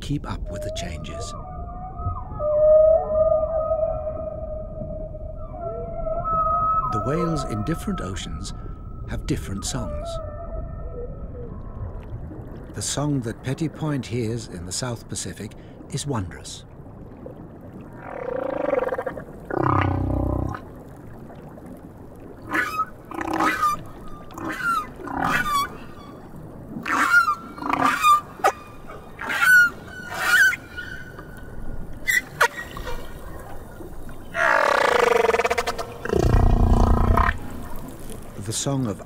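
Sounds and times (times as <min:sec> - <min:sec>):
whale moans: 0:00.6 - 0:09.1, 0:18.2 - 0:20.7, 0:34.3 - 0:37.5.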